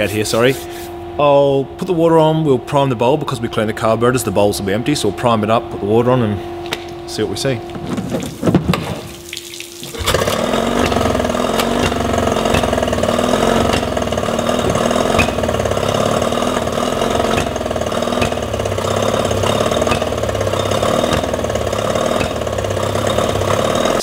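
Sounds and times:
outboard engine starting and idling: 0:06.5 - 0:24.0
sharp engine pop: 0:14.6 - 0:15.5.

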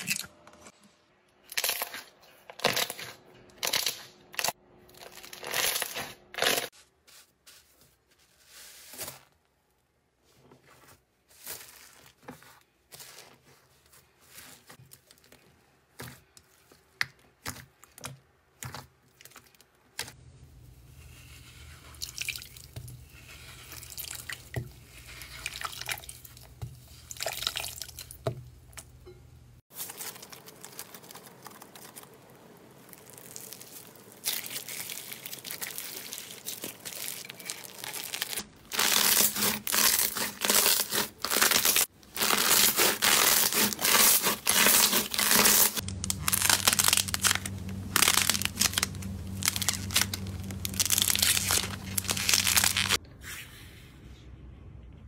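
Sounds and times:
slime squishing and crackling: 0:29.7 - 0:53.0
low steady hum: 0:44.4 - 0:55.0.

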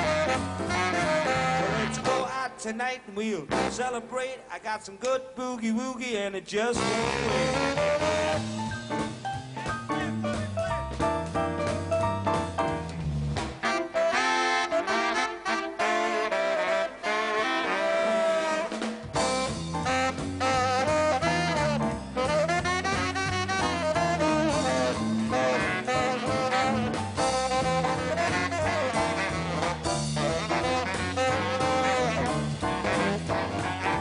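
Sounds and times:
electric bass line: 0:00.0 - 0:02.3, 0:06.8 - 0:13.7, 0:18.8 - 0:34.0
tenor saxophone solo: 0:00.0 - 0:02.3, 0:06.8 - 0:08.7, 0:13.6 - 0:34.0
drums: 0:00.0 - 0:05.0, 0:05.6 - 0:34.0.

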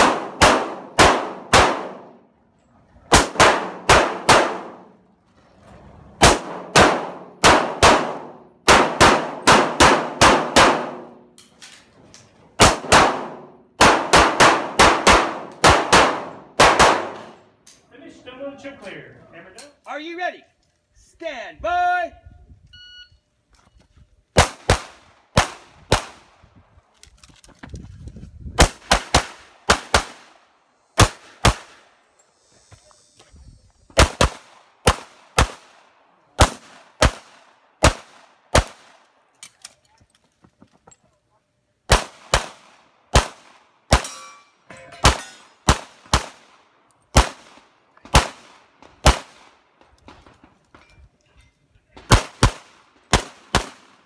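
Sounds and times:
pistol shots: 0:00.0 - 0:02.2, 0:03.1 - 0:04.9, 0:06.2 - 0:11.2, 0:12.6 - 0:17.4, 0:28.6 - 0:30.3, 0:31.0 - 0:31.8, 0:34.0 - 0:35.8, 0:36.4 - 0:39.0, 0:41.9 - 0:44.2, 0:45.0 - 0:49.6, 0:52.0 - 0:54.0.

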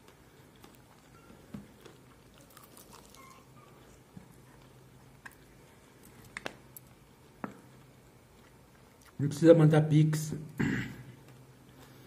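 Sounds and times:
chewing crispy chicken: 0:01.7 - 0:06.6.

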